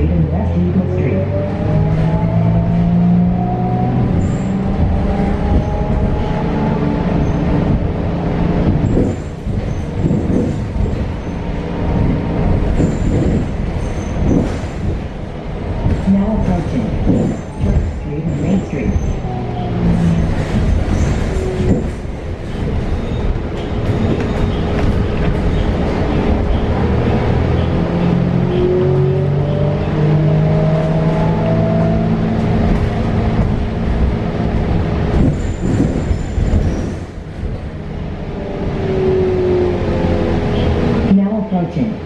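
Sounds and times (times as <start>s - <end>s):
electric bus drive whine: 0.0s - 15.8s
road rumble: 0.0s - 42.0s
knocks and rattles: 8.6s - 11.3s, 20.0s - 26.6s, 35.0s - 37.7s.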